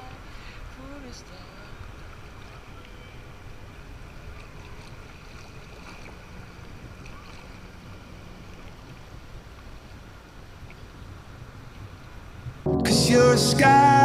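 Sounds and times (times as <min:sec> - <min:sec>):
water lapping and sloshing: 0:01.4 - 0:12.4.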